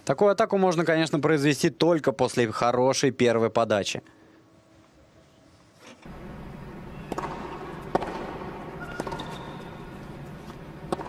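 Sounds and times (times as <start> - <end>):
arena background noise: 0.0 - 11.0
tennis ball struck by rackets: 6.8 - 11.0
ball bouncing on hard court: 6.9 - 11.0.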